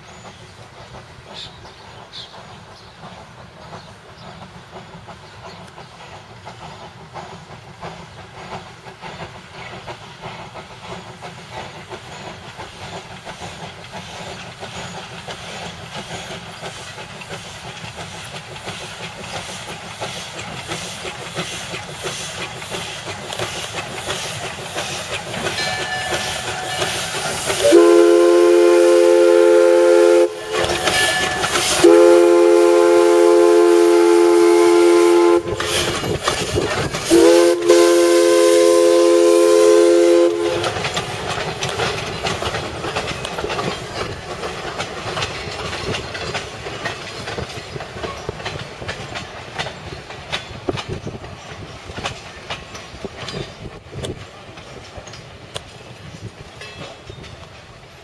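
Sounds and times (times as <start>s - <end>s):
steam locomotive exhaust beat: 0.0s - 58.0s
chime steam whistle blasts: 25.5s - 35.9s, 37.1s - 40.8s.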